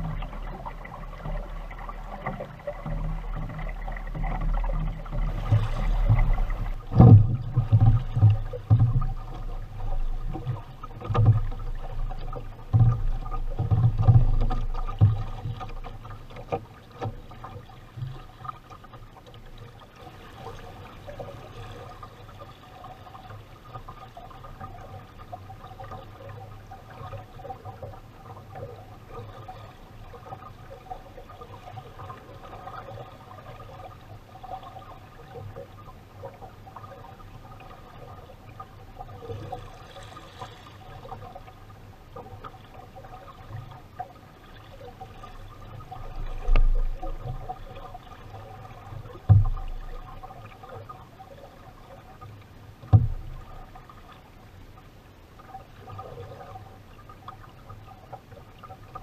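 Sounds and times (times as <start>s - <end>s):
water sloshing along a boat hull: 0.0s - 59.0s
low thumps: 5.2s - 9.0s.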